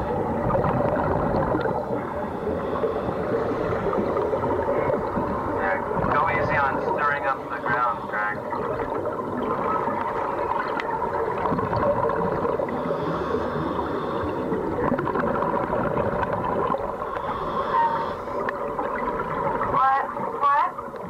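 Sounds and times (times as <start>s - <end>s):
underwater air bubbling: 0.0s - 21.0s.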